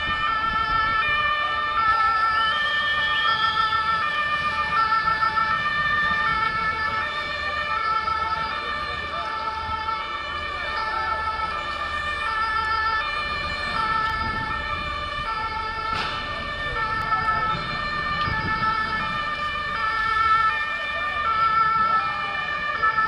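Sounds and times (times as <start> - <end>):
two-tone siren: 0.0 - 23.0
sharp bang: 15.9 - 16.5.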